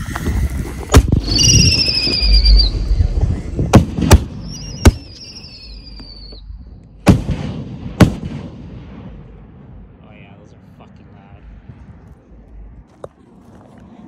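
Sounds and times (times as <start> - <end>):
high firework whistles: 0.0 - 7.3
fireworks bangs: 0.9 - 9.4.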